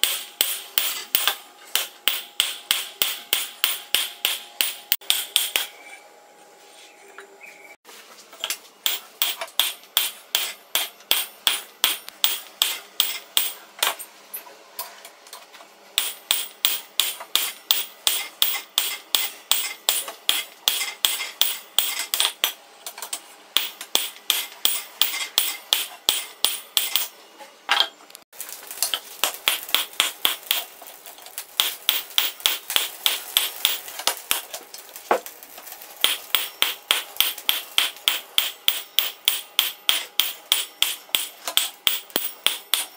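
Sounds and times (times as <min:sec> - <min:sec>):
hammer blows ringing on steel: 0:00.0 - 0:05.8, 0:36.0 - 0:42.9.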